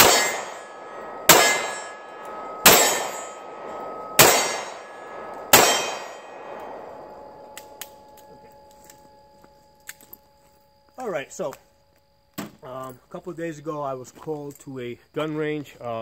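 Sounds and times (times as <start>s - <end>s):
revolver shots: 0.0s - 6.9s.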